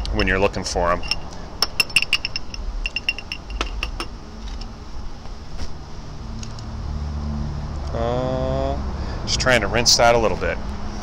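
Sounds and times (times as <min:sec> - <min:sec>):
low steady hum: 0:00.0 - 0:11.0
metal pick clinking on glass: 0:01.0 - 0:04.7.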